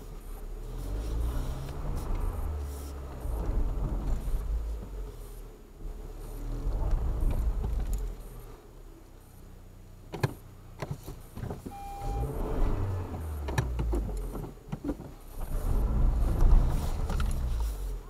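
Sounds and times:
car engine rumbling surges: 0:00.0 - 0:18.0
short beep: 0:11.7 - 0:12.4.

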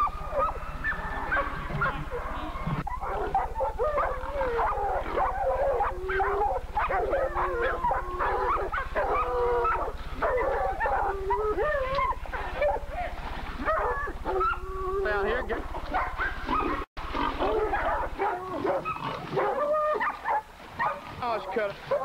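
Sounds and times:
steady low hum: 0:00.0 - 0:21.2
dogs barking and yelping: 0:00.0 - 0:22.0.

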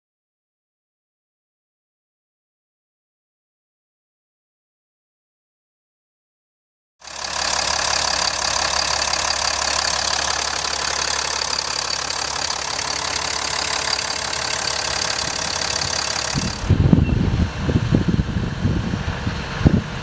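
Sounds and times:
diesel engine idling: 0:07.0 - 0:20.0.

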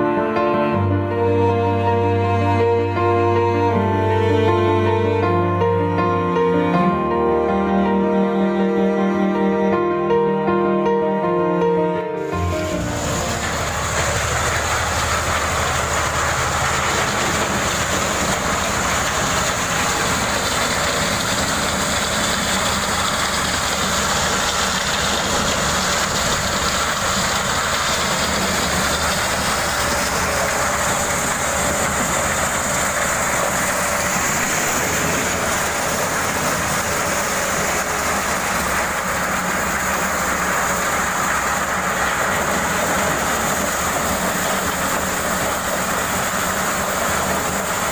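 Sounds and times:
corn sheller mechanical din: 0:12.2 - 0:47.9
low engine hum: 0:12.3 - 0:47.9.

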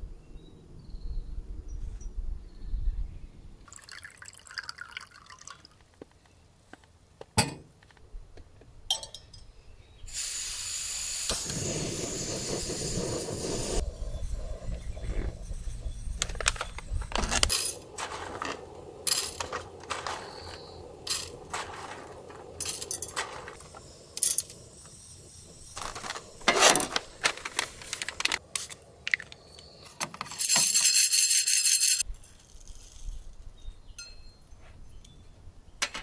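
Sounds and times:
paper bag rustling: 0:16.3 - 0:23.7, 0:25.7 - 0:28.4
coffee beans rattling into metal bowl: 0:16.3 - 0:24.6, 0:25.7 - 0:28.4, 0:30.2 - 0:33.2.

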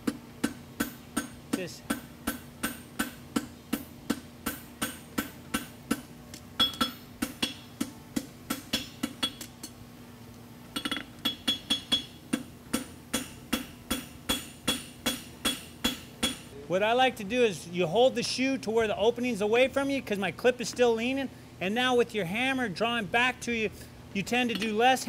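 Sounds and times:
hammer striking metal on anvil: 0:00.0 - 0:09.7, 0:10.8 - 0:16.5.

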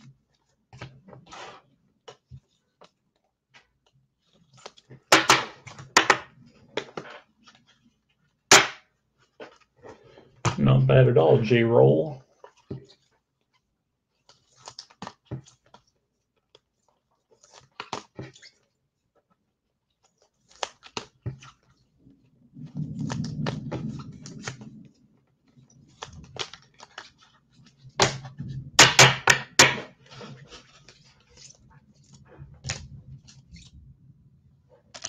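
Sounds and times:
low rubbing rustle: 0:21.8 - 0:28.8.

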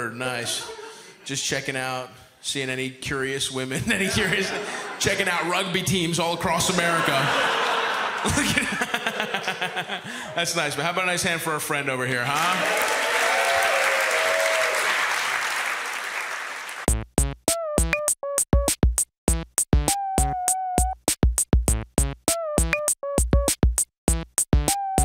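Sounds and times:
audience applauding: 0:07.1 - 0:09.8, 0:12.3 - 0:16.9
drum-machine beat: 0:16.8 - 0:25.0
synthesizer melody: 0:24.1 - 0:25.0.

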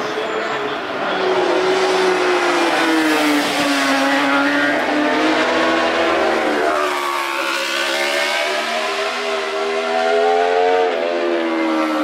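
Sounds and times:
motorcycle racing past: 0:02.8 - 0:12.0.

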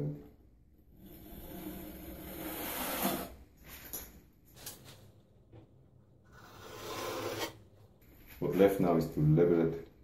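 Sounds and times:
trowel scraping wet mortar: 0:06.3 - 0:07.6.

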